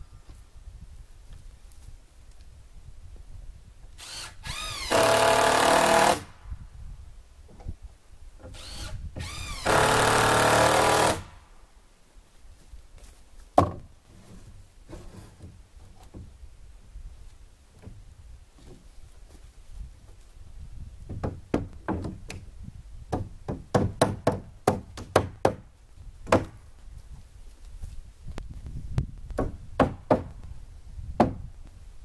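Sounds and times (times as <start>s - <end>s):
power drill drilling into wood: 4.0s - 6.3s, 8.5s - 11.3s.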